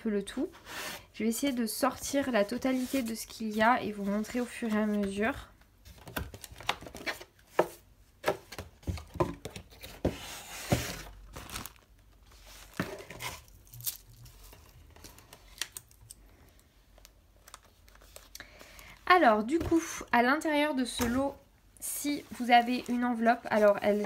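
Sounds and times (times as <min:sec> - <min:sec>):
paper envelopes rustling: 0:10.7 - 0:16.0, 0:22.1 - 0:24.0.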